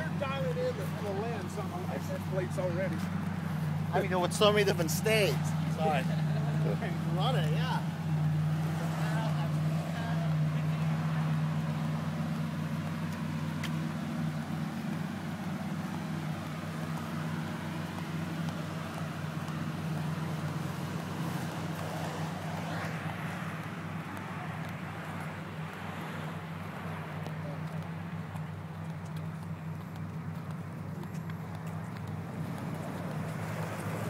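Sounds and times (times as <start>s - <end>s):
car engines idling: 0.0s - 34.0s.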